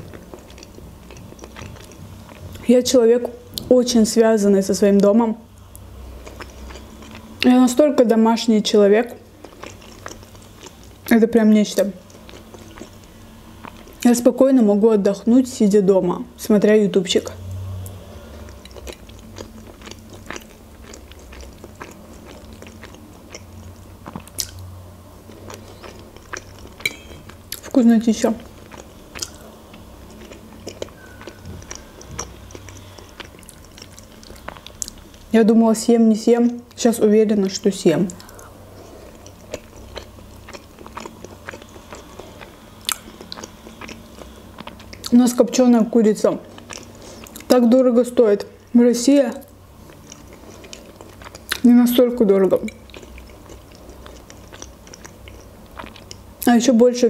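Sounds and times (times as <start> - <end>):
woman chewing: 0.0 - 2.6, 5.7 - 7.5, 9.4 - 11.1, 12.0 - 14.0, 17.8 - 24.6, 25.3 - 27.8, 28.4 - 35.2, 38.1 - 45.2, 46.4 - 47.6, 49.4 - 51.6, 52.6 - 56.3.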